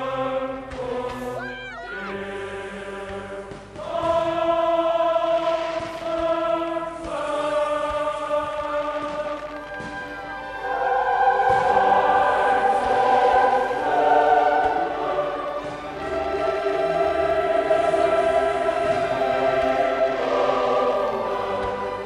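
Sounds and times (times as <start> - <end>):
choir singing held chords: 0.0 - 22.0
orchestra playing: 9.6 - 22.0.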